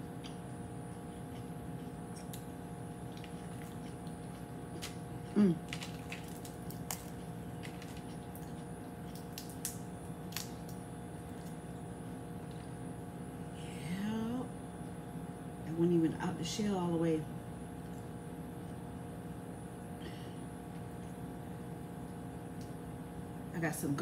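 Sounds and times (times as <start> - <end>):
faint steady hum: 0.0 - 24.0
crawfish shells cracking: 2.1 - 12.8.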